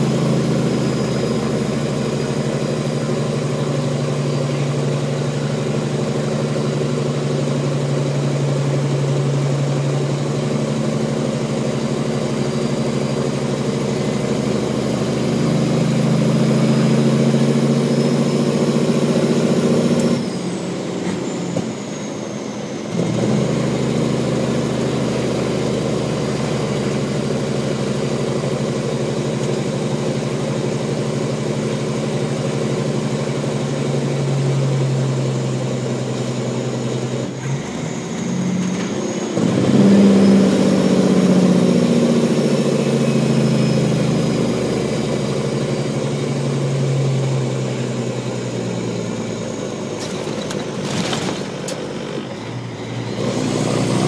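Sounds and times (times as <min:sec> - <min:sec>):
truck diesel engine running: 0:00.0 - 0:54.0.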